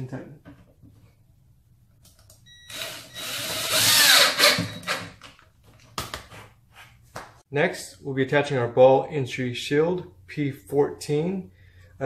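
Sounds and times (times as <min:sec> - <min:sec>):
cordless drill driving a screw: 0:02.7 - 0:05.1.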